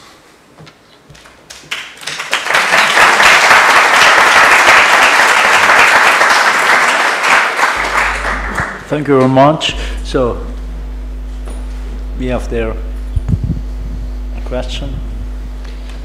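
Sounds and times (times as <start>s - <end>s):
audience applause: 1.5s - 9.1s.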